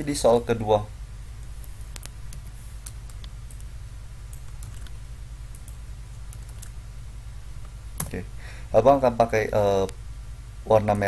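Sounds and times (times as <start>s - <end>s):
low electrical hum: 0.0s - 11.0s
keyboard keys clicking: 5.5s - 6.7s.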